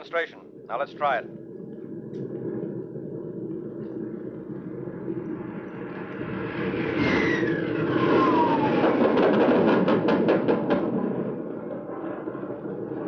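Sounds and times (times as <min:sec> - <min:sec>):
aircraft engine: 0:00.0 - 0:13.0
falling whistle: 0:06.9 - 0:09.2.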